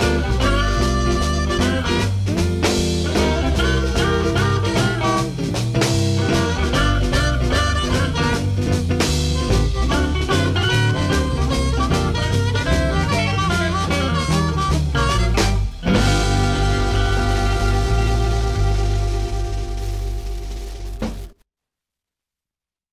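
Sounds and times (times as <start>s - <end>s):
electric blues band playing: 0.0s - 21.3s.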